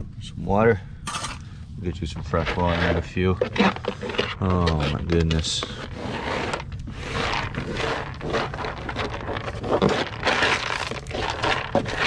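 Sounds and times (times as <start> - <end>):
dry kibble rattling and scraping: 1.1 - 12.0.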